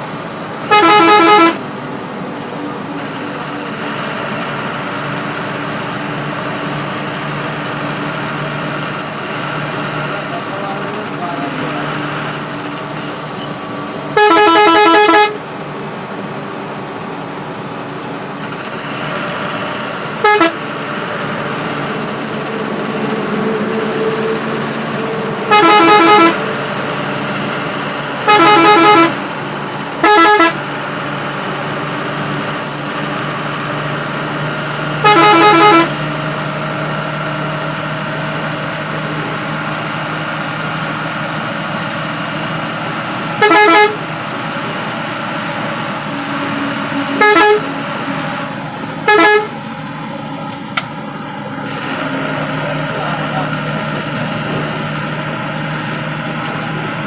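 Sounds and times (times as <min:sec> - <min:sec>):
bus engine: 0:00.0 - 0:57.0
road noise: 0:00.0 - 0:57.0
bus horn blasts: 0:00.6 - 0:01.7, 0:14.1 - 0:15.5, 0:20.2 - 0:20.8, 0:23.0 - 0:26.7, 0:28.2 - 0:29.3, 0:29.9 - 0:30.7, 0:34.9 - 0:36.5, 0:43.3 - 0:44.2, 0:46.3 - 0:48.2, 0:49.0 - 0:49.7.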